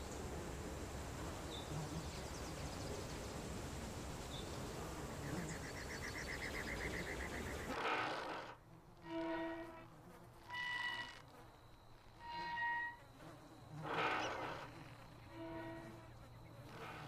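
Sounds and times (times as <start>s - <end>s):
insects trilling: 0.0s - 17.0s
steady hiss: 0.0s - 17.0s
fast pulsing insect trill: 5.2s - 17.0s.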